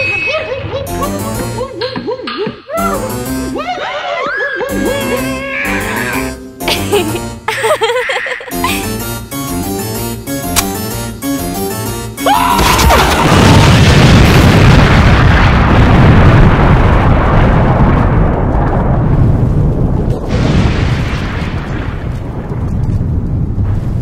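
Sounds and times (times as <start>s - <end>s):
keyboard music: 0.8s - 1.9s, 2.8s - 3.8s, 4.6s - 13.4s
explosion sound effect: 12.4s - 24.0s.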